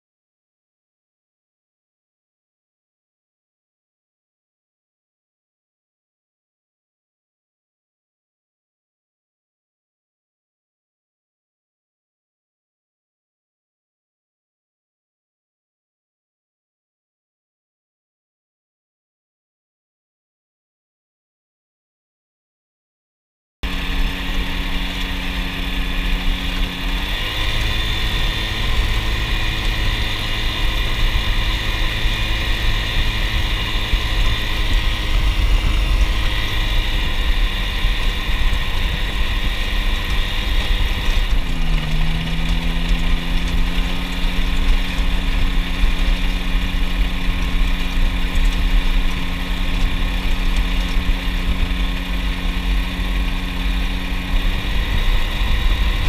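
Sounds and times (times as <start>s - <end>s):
light aircraft engine and propeller: 23.6s - 56.0s.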